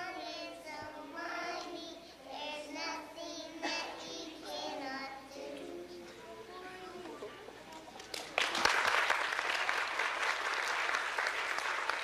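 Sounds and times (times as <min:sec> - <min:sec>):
children singing: 0:00.0 - 0:06.1.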